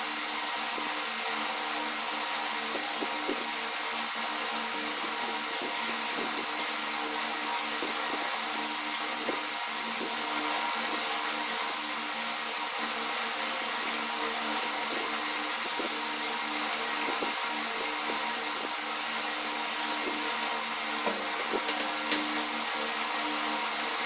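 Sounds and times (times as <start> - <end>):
fan motor whirring hiss: 0.0 - 24.0.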